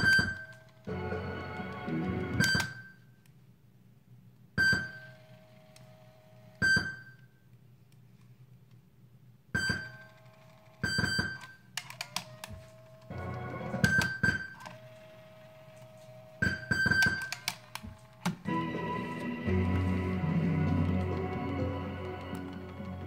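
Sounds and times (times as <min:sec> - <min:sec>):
tape playback: 0:00.0 - 0:02.9, 0:10.9 - 0:23.0.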